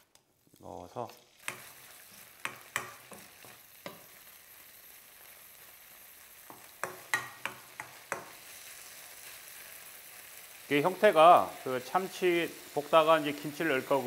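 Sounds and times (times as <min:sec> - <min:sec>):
fish sizzling in a frying pan: 0:00.0 - 0:14.0
spatula tapping and scraping pan: 0:01.4 - 0:04.2, 0:06.4 - 0:08.4.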